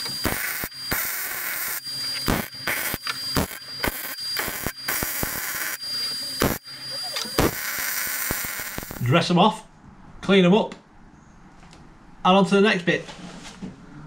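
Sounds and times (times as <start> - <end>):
welding arc crackling and hissing: 0.0 - 9.2.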